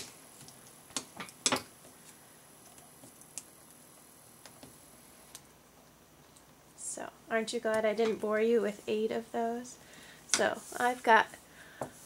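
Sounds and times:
paper folding clicks and taps: 0:00.0 - 0:01.7.

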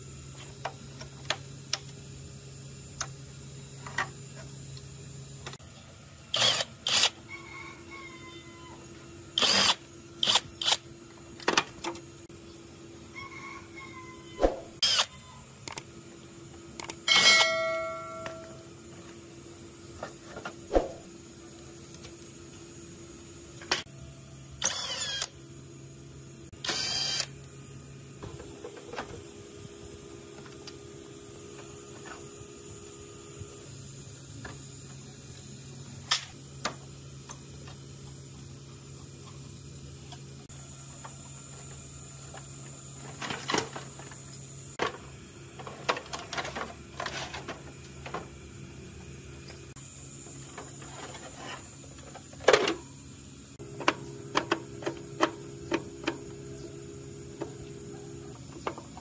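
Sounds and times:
steady low hum: 0:08.7 - 0:59.0
tools and parts clicking and knocking: 0:11.4 - 0:12.1, 0:16.8 - 0:18.6, 0:45.6 - 0:48.3, 0:53.8 - 0:56.2.

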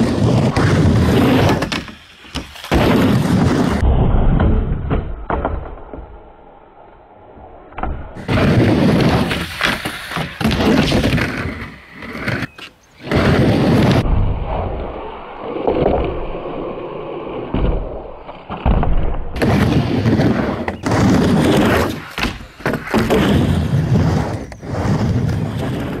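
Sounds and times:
skateboard wheels rolling on wood: 0:00.0 - 0:26.0
skateboard clacks and landing thuds: 0:00.5 - 0:06.4, 0:17.4 - 0:24.6.

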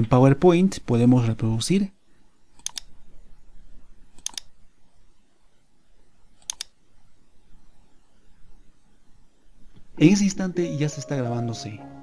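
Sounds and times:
faint background noise: 0:00.0 - 0:12.0
computer mouse clicks: 0:02.5 - 0:03.0, 0:04.1 - 0:04.6, 0:06.4 - 0:06.8.

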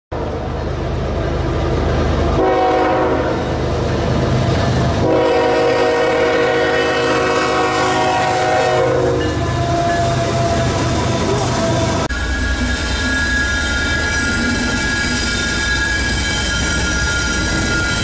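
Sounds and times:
locomotive air horn blasts: 0:02.4 - 0:03.4, 0:05.0 - 0:09.4.

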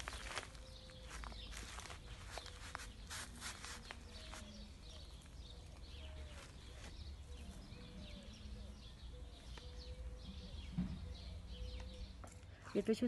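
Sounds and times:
bare feet stepping in tubs: 0:00.0 - 0:04.5
small birds chirping: 0:00.0 - 0:13.0.

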